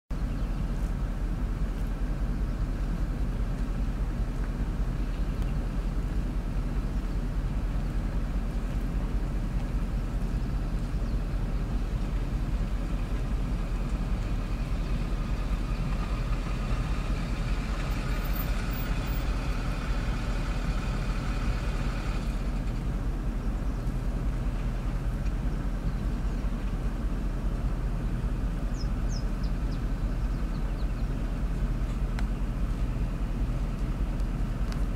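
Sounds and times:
low rumble: 0.1 - 34.9.

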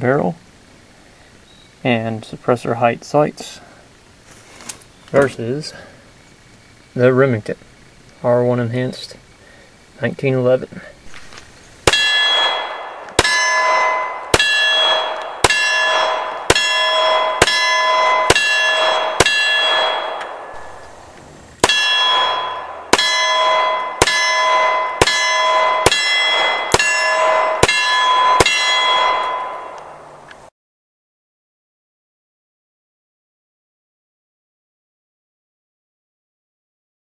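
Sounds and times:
pistol shots: 11.8 - 30.0
steel target ringing: 11.8 - 30.3.

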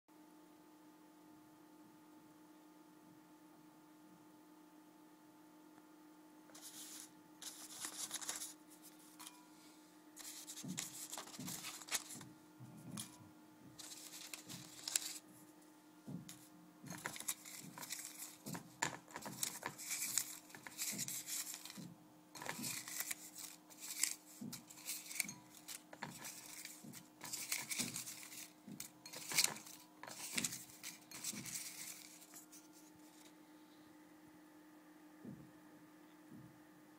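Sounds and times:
paper slips rustling: 6.5 - 9.4, 10.2 - 12.3, 13.0 - 13.2, 13.8 - 15.2, 16.3 - 33.3.

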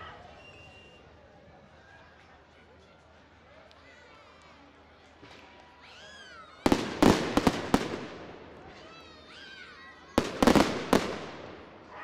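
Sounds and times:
fireworks bangs: 6.6 - 8.8, 10.2 - 11.9.

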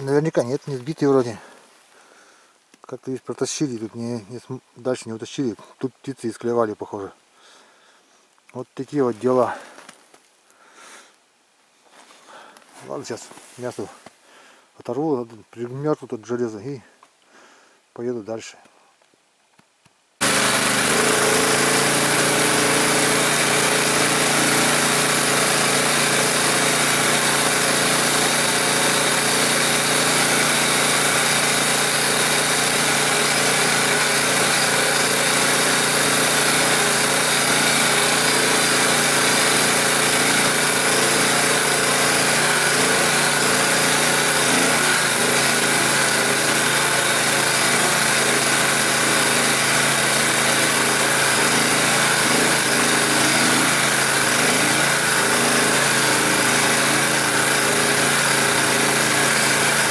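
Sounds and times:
small engine running: 20.2 - 59.9.

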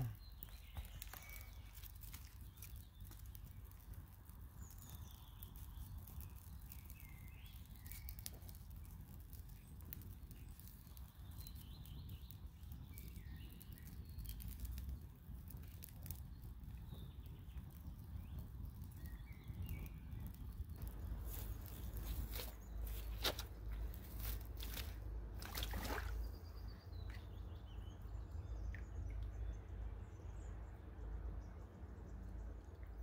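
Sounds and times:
twigs popping and snapping: 0.0 - 8.6, 20.7 - 26.3
kindling fire crackling: 0.0 - 28.2
small birds chirping: 0.0 - 33.0.

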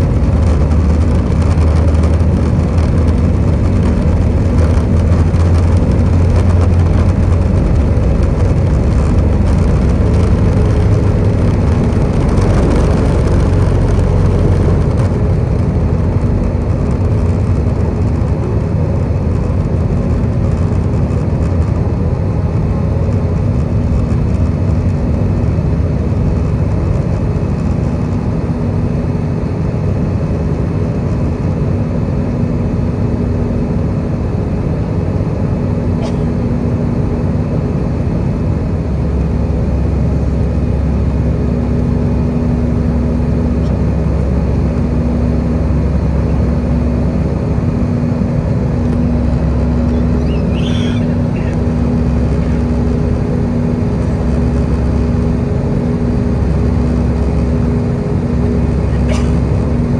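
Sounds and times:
heavy runway rumble: 0.0 - 59.9
jet engines at takeoff thrust: 0.0 - 59.9
airflow noise: 47.6 - 59.9.

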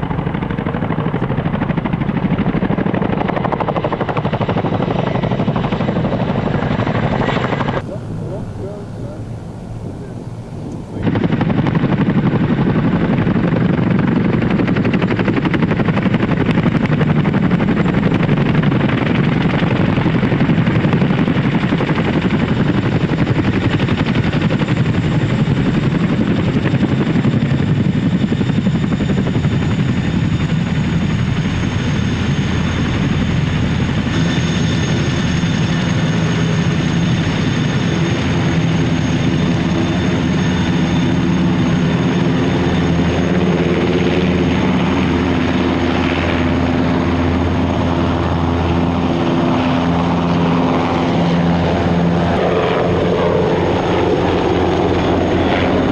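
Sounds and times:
helicopter rotor chop: 0.0 - 55.9
turbine whine: 0.0 - 55.9.

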